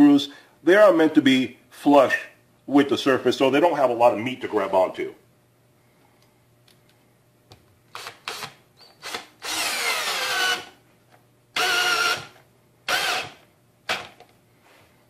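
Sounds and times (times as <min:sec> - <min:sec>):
cordless drill driving screw into wood: 0:07.9 - 0:10.7, 0:11.6 - 0:14.2.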